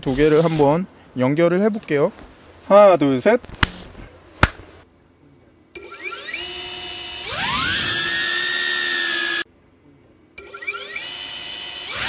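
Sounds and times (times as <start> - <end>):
drone propellers whining: 6.0 - 9.4.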